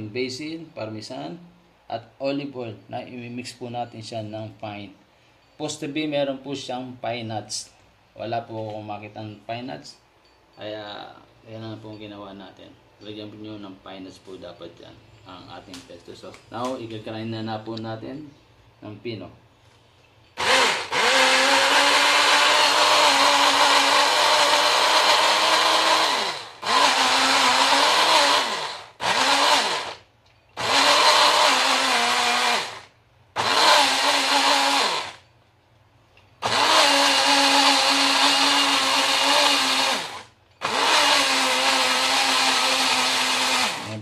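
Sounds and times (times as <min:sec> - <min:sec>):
blender motor grinding: 0:20.4 - 0:35.2, 0:36.4 - 0:44.0.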